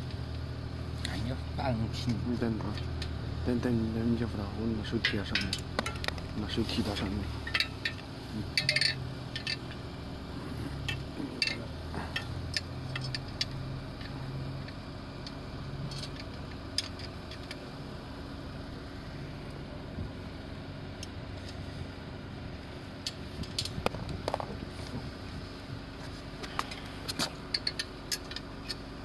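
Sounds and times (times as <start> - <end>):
steady low hum: 0.0 - 29.0
metal parts clicking and tapping: 5.0 - 6.3, 7.4 - 9.8, 10.8 - 17.6, 26.5 - 28.8.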